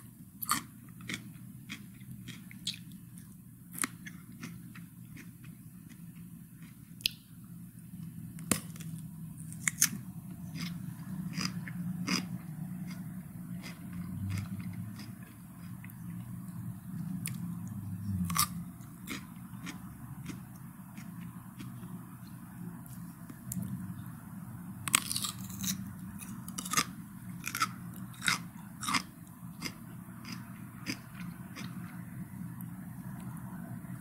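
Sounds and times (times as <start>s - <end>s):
chewing cucumber crunches: 0.4s - 5.3s, 8.4s - 16.5s, 17.1s - 21.9s, 24.9s - 31.9s
low hum: 7.3s - 34.0s.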